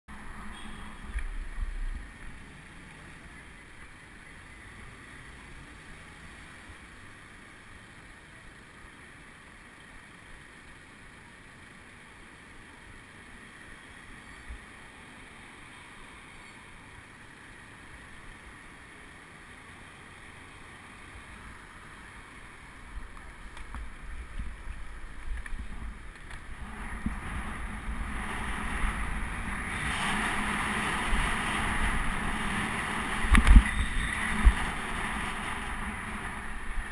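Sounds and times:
street traffic noise: 0:00.1 - 0:36.9
wind rushing over microphone: 0:22.9 - 0:36.9.

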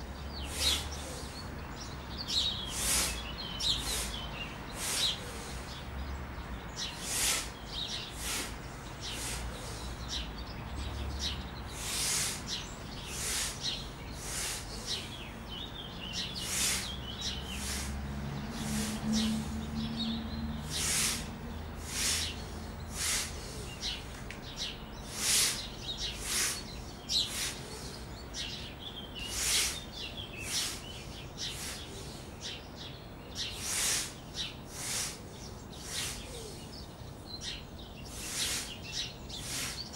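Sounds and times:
sharp forceful exhalations: 0:02.6 - 0:04.2, 0:04.8 - 0:05.8, 0:06.8 - 0:09.9, 0:11.7 - 0:15.0, 0:16.4 - 0:19.7, 0:20.7 - 0:24.0, 0:25.0 - 0:28.0, 0:29.2 - 0:32.2, 0:33.5 - 0:35.2, 0:35.8 - 0:36.6, 0:38.1 - 0:39.9.

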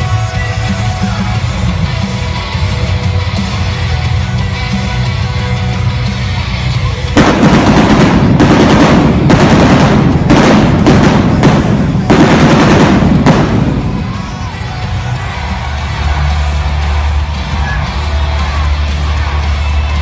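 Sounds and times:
show music: 0:00.0 - 0:20.0
pyrotechnic bangs: 0:07.2 - 0:14.8.

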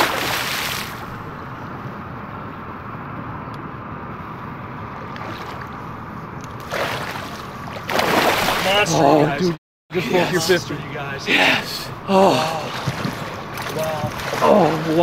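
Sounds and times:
fish splashing in net: 0:00.0 - 0:01.0, 0:06.6 - 0:08.8, 0:12.7 - 0:15.0
water and wind rushing: 0:00.0 - 0:01.8, 0:04.2 - 0:15.0.

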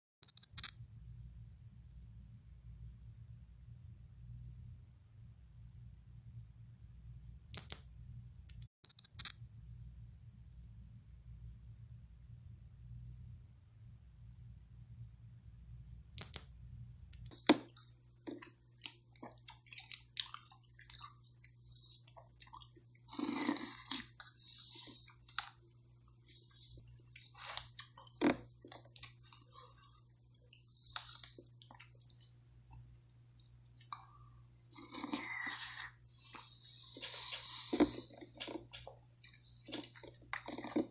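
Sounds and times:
chewing and smacking: 0:17.2 - 0:25.6, 0:26.4 - 0:32.3, 0:34.7 - 0:40.9.

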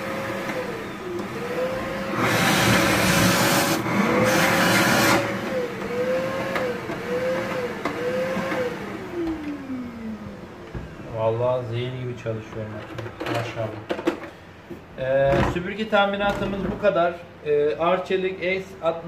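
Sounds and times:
vacuum cleaner running: 0:00.0 - 0:11.7.

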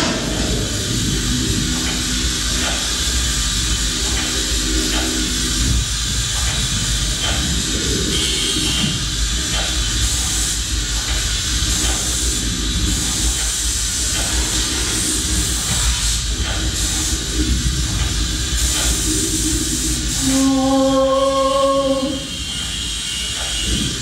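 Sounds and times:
low rumble: 0:00.0 - 0:08.1
steady hissing rushing noise: 0:00.0 - 0:24.0.

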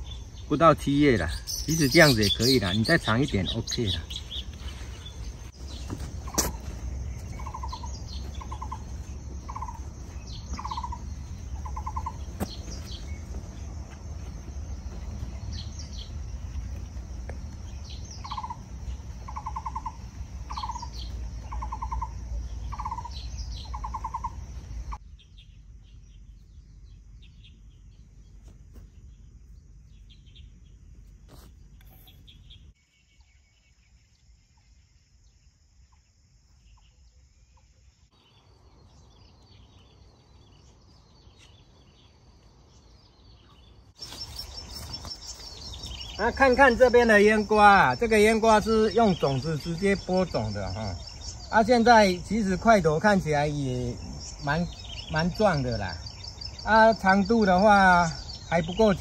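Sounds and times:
bird trilled call: 0:01.2 - 0:04.5, 0:05.8 - 0:13.3, 0:17.7 - 0:25.5.

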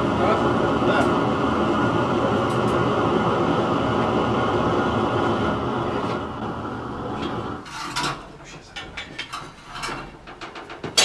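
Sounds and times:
gas burner roaring: 0:00.0 - 0:08.5.

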